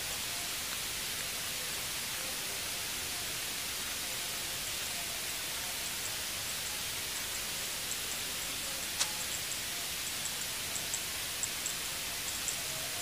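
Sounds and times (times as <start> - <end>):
open-air background hiss: 0.0 - 13.0
faint high chirps: 7.9 - 13.0.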